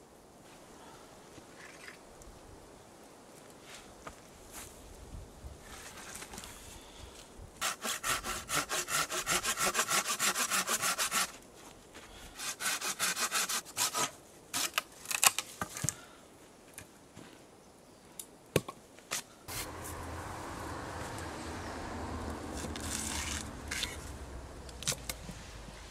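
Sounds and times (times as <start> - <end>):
hand saw cutting branch: 7.6 - 11.4, 12.4 - 15.4, 19.5 - 20.1, 22.2 - 25.3.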